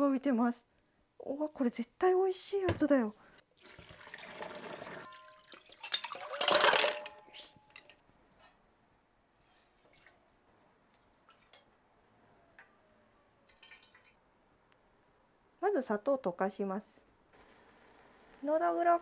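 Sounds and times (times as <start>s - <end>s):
kitchenware clicks: 6.4s - 8.0s.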